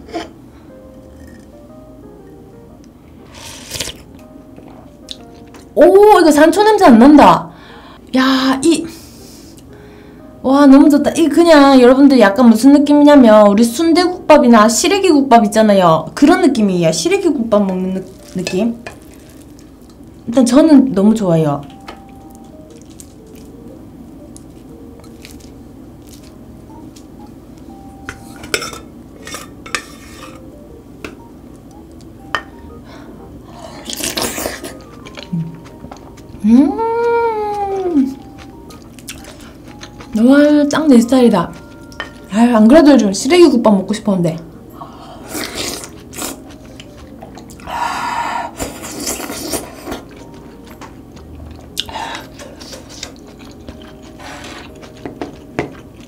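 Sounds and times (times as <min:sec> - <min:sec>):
wet chewing: 0:22.4 - 0:23.5, 0:37.0 - 0:40.8, 0:45.4 - 0:47.8, 0:48.6 - 0:56.0
spoon scraping and stirring: 0:28.4 - 0:30.4.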